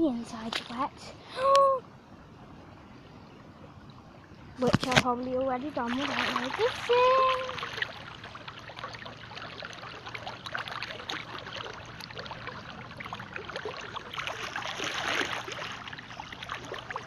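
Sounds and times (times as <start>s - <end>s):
water sloshing and trickling: 0.0s - 17.0s
boots wading through water: 4.6s - 17.0s.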